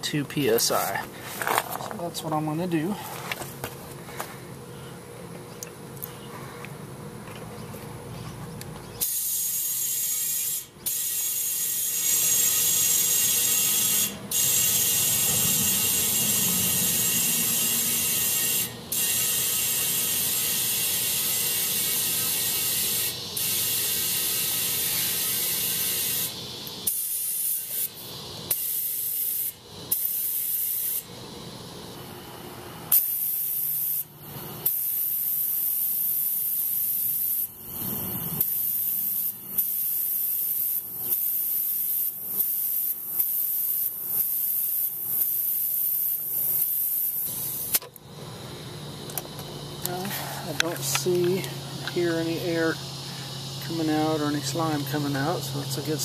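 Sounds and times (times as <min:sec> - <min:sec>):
compressed air hissing: 0:09.0 - 0:31.9, 0:32.9 - 0:47.8, 0:49.8 - 0:55.2.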